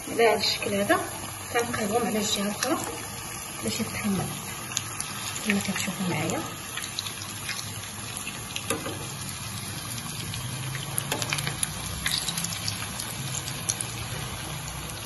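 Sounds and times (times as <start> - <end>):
potato patties sizzling in oil: 0.0 - 15.0.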